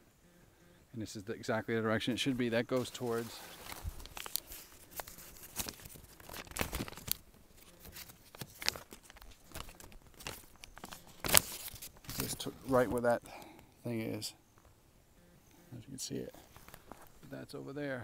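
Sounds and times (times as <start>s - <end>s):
crackling and rustling: 2.1s - 13.7s, 16.2s - 17.4s.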